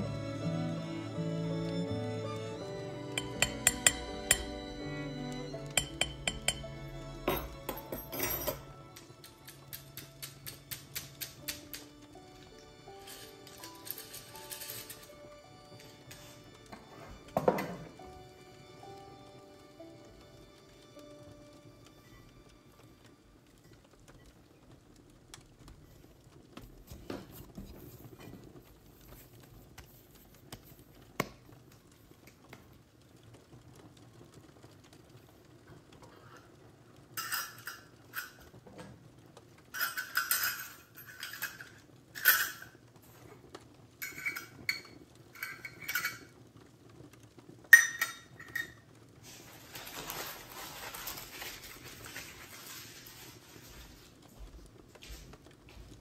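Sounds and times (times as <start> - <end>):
metal sieve clinking: 3.2 - 4.8, 5.6 - 11.9, 13.0 - 15.3, 37.2 - 38.4, 39.8 - 42.8, 44.0 - 46.4
soft rustling hiss: 8.0 - 56.0.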